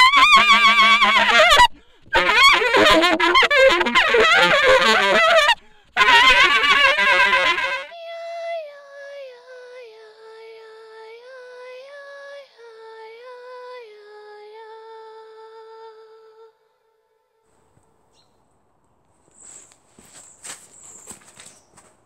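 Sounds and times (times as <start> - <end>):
high voice singing wordless melody: 6.0 - 16.8.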